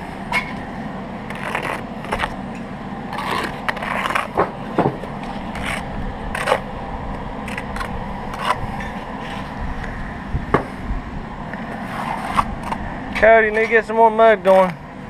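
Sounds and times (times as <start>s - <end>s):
steady low hum: 0.0s - 15.0s
trowel scraping mortar on brick: 1.3s - 2.4s, 3.1s - 4.5s, 5.1s - 6.7s, 7.4s - 9.6s, 11.7s - 12.8s.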